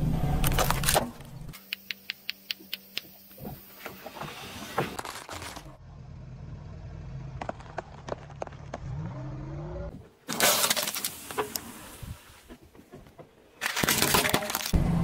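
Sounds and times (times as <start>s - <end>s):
low car hum: 0.0s - 1.6s, 5.6s - 10.2s
sharp clicks: 1.5s - 3.4s.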